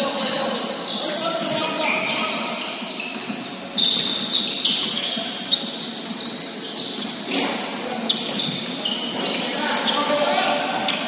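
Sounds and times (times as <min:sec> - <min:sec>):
players' voices: 0:00.0 - 0:11.0
shoes squeaking on hardwood floor: 0:00.0 - 0:11.0
basketball bouncing: 0:03.2 - 0:05.1.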